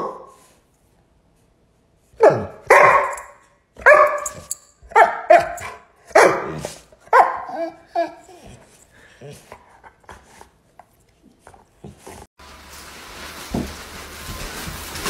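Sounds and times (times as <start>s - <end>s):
dog barking and howling: 2.2s - 8.6s.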